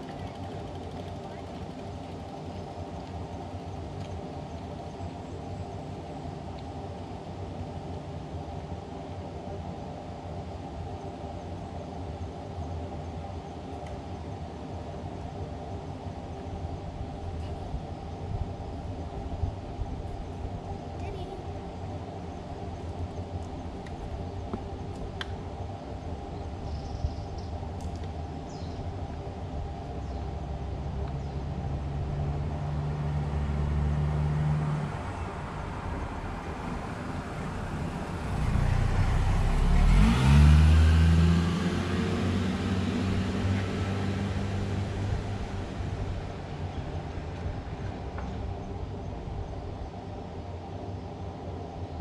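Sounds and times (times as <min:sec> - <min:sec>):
car engine passing by: 0:31.5 - 0:48.5.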